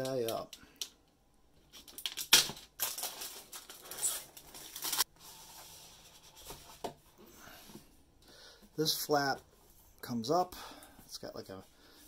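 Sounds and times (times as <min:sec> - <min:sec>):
plastic wrap crinkling and tearing: 0:01.7 - 0:05.1.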